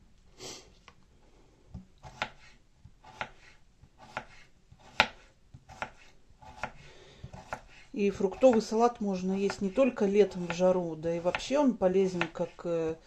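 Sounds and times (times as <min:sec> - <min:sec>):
knife slicing cucumber: 0:02.0 - 0:12.6.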